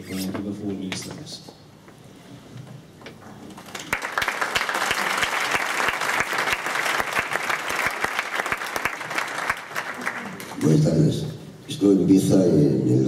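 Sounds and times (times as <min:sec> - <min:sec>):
audience applauding: 0:03.5 - 0:10.9.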